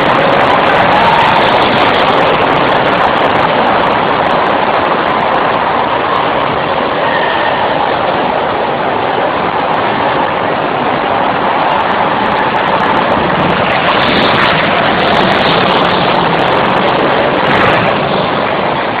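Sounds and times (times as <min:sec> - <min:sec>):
go-kart engines running: 0:00.0 - 0:19.0.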